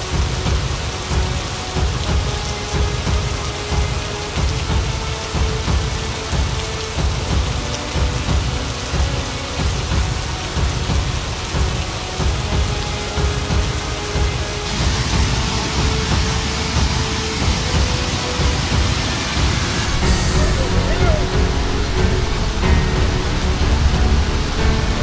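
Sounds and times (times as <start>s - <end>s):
heavy rain: 0.0s - 25.0s
faint held notes: 17.8s - 25.0s
deep pulsing rumble: 19.7s - 25.0s.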